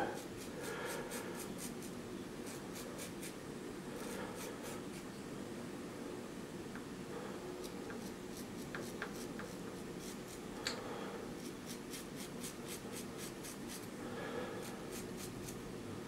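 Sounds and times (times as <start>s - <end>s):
razor scraping stubble: 0.0s - 3.4s, 4.0s - 5.1s, 7.6s - 10.4s, 11.4s - 13.9s, 14.6s - 15.6s.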